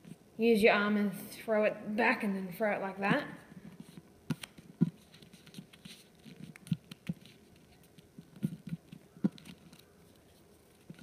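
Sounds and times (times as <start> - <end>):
paper rustling: 3.7 - 11.0.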